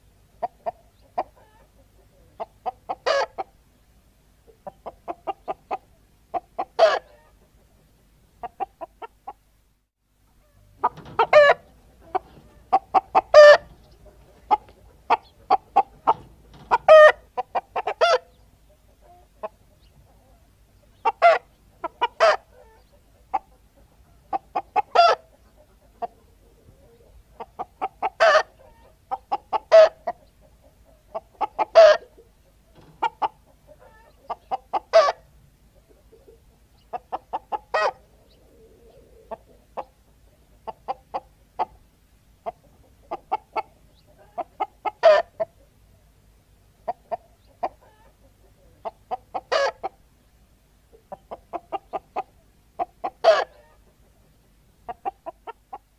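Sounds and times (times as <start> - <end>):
hens cackling: 0.3 - 3.6, 4.5 - 9.4, 10.3 - 45.9, 46.8 - 50.1, 50.9 - 55.9.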